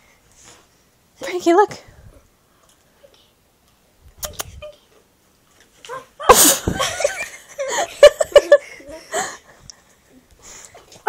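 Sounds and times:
children laughing: 5.9 - 9.6.

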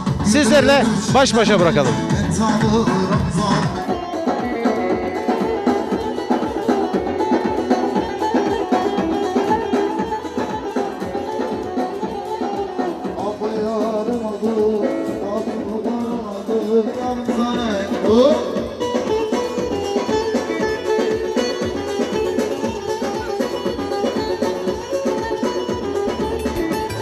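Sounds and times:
steady dense drum beat: 0.0 - 8.4, 23.7 - 27.0
wavering folk melody: 0.8 - 27.0.

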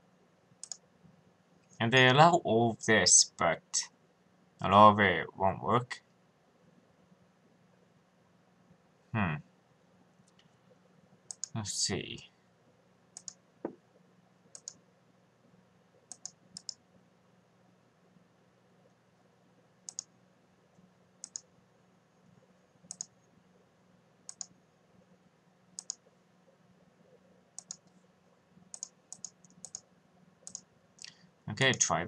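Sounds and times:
faint low hum: 0.0 - 32.0
computer mouse clicking: 0.6 - 0.8, 11.3 - 11.6, 13.2 - 13.4, 14.5 - 14.8, 16.1 - 16.8, 19.9 - 20.1, 21.2 - 21.5, 22.9 - 23.2, 24.3 - 24.6, 25.8 - 26.1, 27.6 - 28.0, 28.7 - 31.9.

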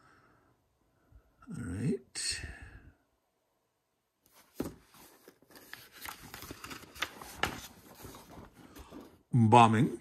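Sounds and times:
paper sheets rustling: 4.3 - 9.2.

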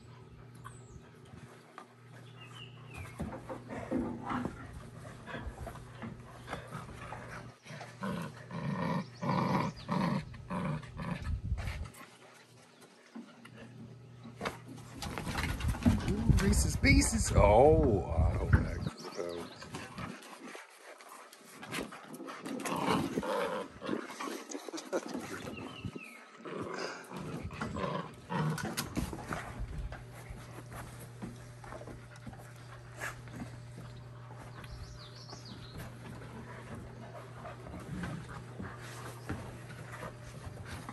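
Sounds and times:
dogs growling in play: 0.0 - 12.6, 18.4 - 40.9
low steady hum: 0.0 - 40.9
dogs scuffling with toy: 14.4 - 17.2, 26.6 - 40.9
sharp clicks and knocks of paws: 18.9 - 23.2, 28.4 - 40.9.

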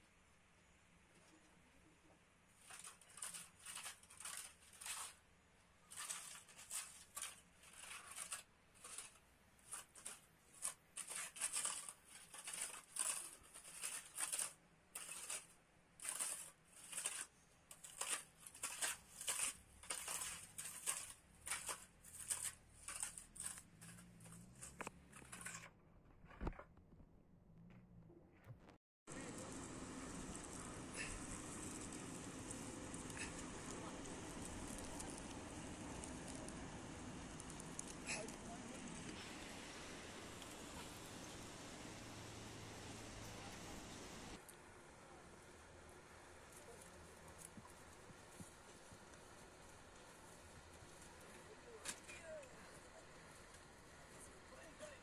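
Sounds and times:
trowel scraping wet mortar: 2.6 - 5.2, 5.9 - 25.7, 30.9 - 36.5.

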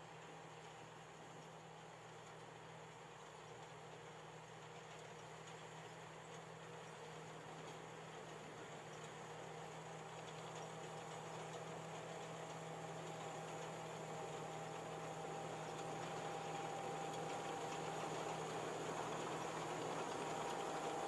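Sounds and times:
combine harvester hum: 9.2 - 21.0.

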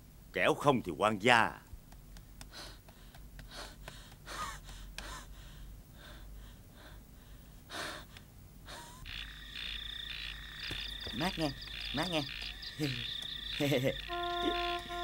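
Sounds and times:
man breathing hard: 2.5 - 9.0
frogs croaking: 9.0 - 15.0.

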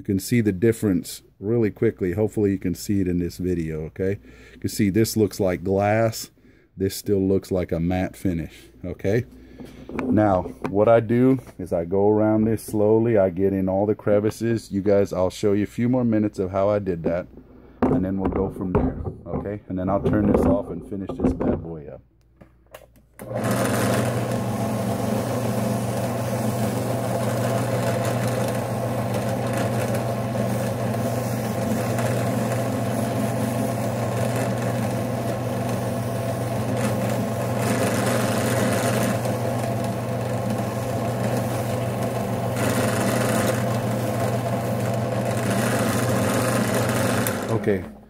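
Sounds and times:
drill press motor hum: 23.2 - 48.0
buffing wheel polishing: 23.4 - 47.8.

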